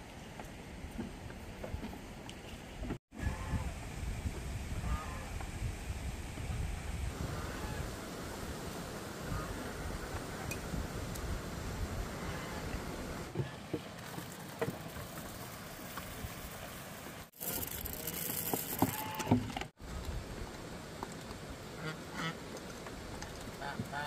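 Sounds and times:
background hiss: 4.8s - 24.0s.

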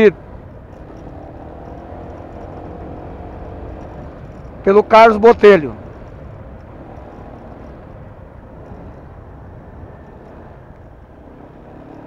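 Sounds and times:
motorcycle engine: 0.0s - 12.0s.

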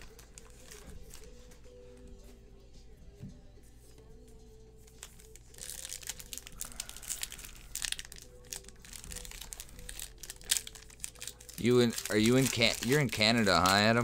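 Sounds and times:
foil wrappers crinkling and tearing: 0.0s - 1.6s, 4.8s - 14.0s.

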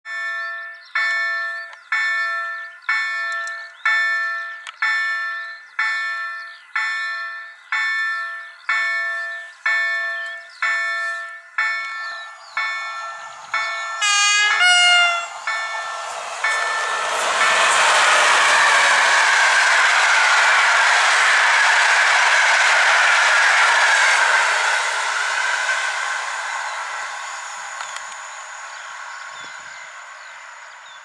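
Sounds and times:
level crossing warning bell: 0.1s - 17.6s
rushing noise of train: 0.1s - 31.0s
birds chirping: 0.4s - 17.2s, 26.4s - 31.0s
train horn blast: 14.0s - 15.5s.

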